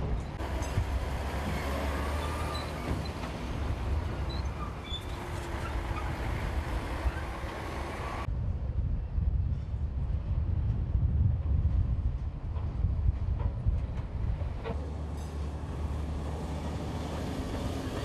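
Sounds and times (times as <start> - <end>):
diesel trucks rumbling: 0.0 - 8.3, 13.3 - 18.0
tyre and road noise: 0.0 - 8.3, 10.0 - 18.0.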